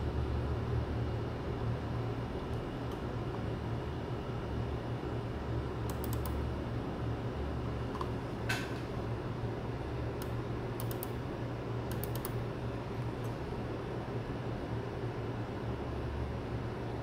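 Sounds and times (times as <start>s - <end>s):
low room hum: 0.0s - 17.0s
computer mouse clicks: 5.8s - 6.4s, 10.2s - 11.2s, 11.9s - 12.4s.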